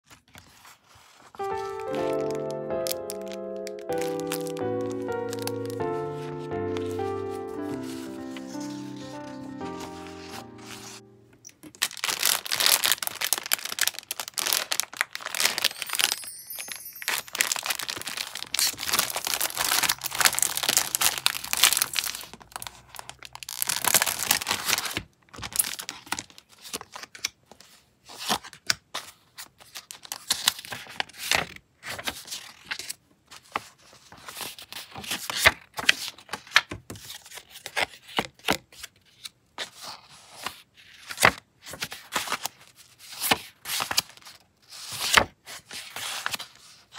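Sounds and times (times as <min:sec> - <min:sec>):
paper cards rustling: 0:00.1 - 0:46.9
plastic bag crinkling: 0:01.4 - 0:06.0, 0:11.5 - 0:26.4.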